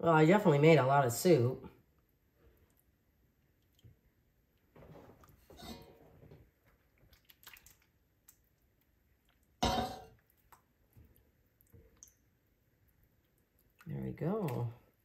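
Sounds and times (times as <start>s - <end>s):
kitchenware clunk: 9.6s - 10.1s.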